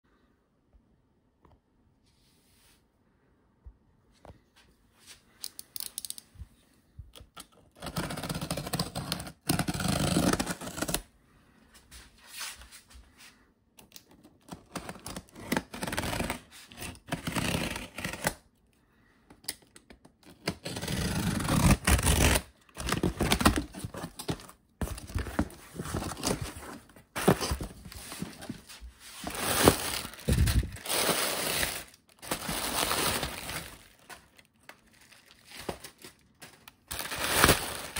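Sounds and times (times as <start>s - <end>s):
packing tape tearing off cardboard: 7.7s - 11.0s, 14.4s - 18.4s, 20.2s - 28.6s, 29.2s - 34.4s, 35.0s - 37.9s
cardboard scraping: 20.6s - 34.3s
plastic air cushions crinkling: 25.5s - 36.1s.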